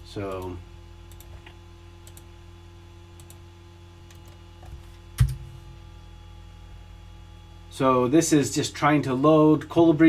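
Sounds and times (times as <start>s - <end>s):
low electrical hum: 0.0s - 10.0s
computer keyboard keystrokes: 4.1s - 5.4s.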